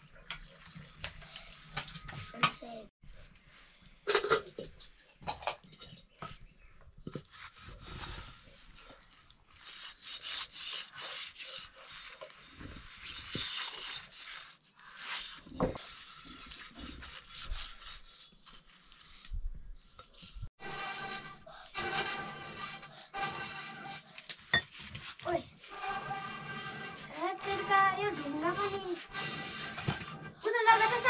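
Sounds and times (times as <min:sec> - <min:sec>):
rough rubbing and scraping: 0:07.3 - 0:31.0.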